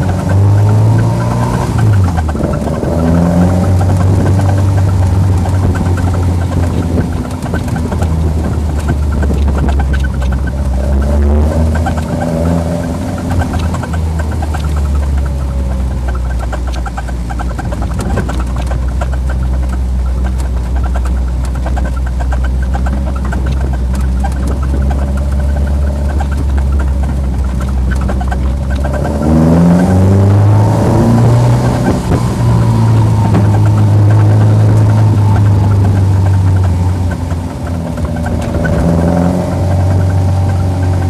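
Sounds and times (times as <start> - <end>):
car engine revving: 0.0 - 41.0.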